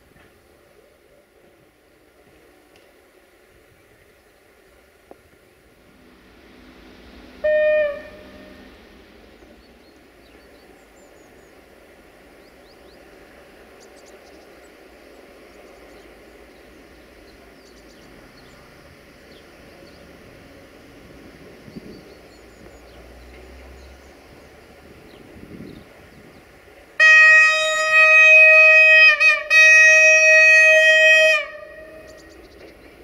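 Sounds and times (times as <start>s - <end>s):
train running rumble: 0.0s - 33.0s
train horn blast: 7.4s - 8.9s, 27.0s - 32.4s.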